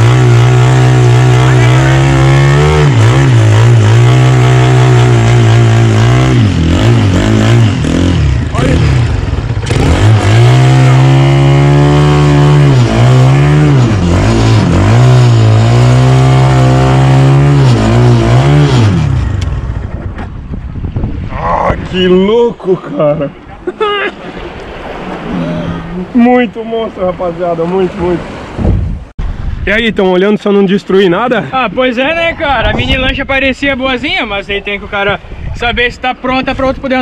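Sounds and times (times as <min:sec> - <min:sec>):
small boat engine revving: 0:00.0 - 0:19.8.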